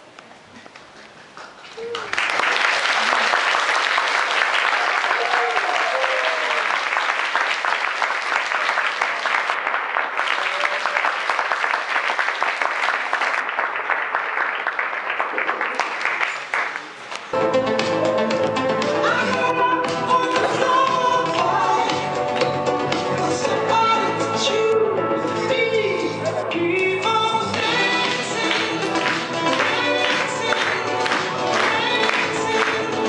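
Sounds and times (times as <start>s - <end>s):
audience applauding: 1.3s - 17.4s, 27.6s - 33.0s
music: 17.4s - 33.0s.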